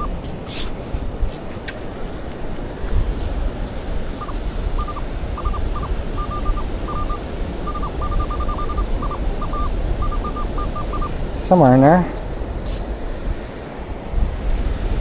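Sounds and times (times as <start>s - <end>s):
surf and wind: 0.0s - 15.0s
metal detector beeps: 4.2s - 11.8s.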